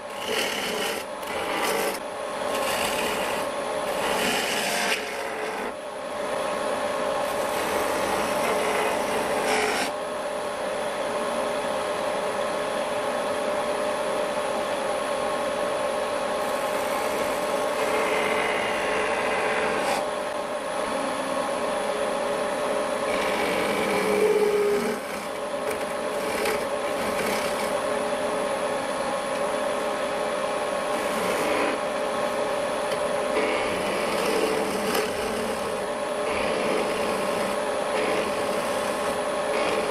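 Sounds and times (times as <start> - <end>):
chisel rasping on spinning wood: 0.0 - 5.8, 7.2 - 10.0, 16.4 - 20.1, 23.0 - 28.0, 30.8 - 32.2, 32.8 - 39.9
wood lathe humming: 0.0 - 10.0, 15.3 - 20.4, 22.2 - 39.9.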